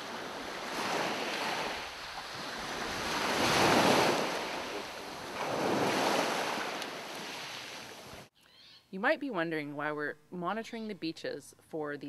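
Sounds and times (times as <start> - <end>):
waves washing on pebbly beach: 0.0 - 7.9.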